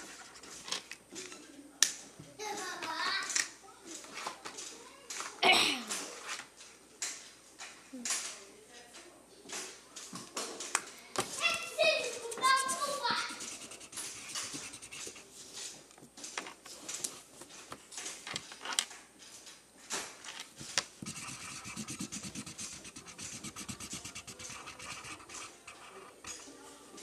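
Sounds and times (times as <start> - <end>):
drawing tool scratching paper: 12.4 - 15.4, 21.0 - 26.4.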